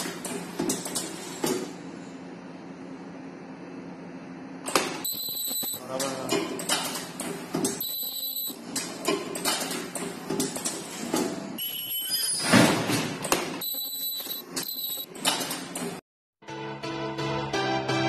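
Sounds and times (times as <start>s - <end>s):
mechanical clatters and knocks: 0.0s - 1.8s, 5.9s - 7.8s, 8.6s - 11.6s.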